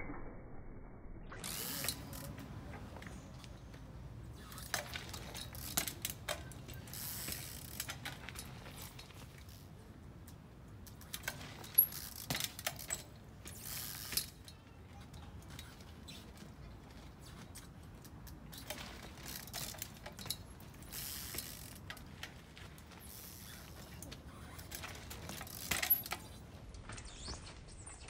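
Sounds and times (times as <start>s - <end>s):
bike freewheel ratcheting: 1.3s - 2.4s, 4.4s - 9.7s, 10.7s - 14.6s, 18.5s - 26.4s.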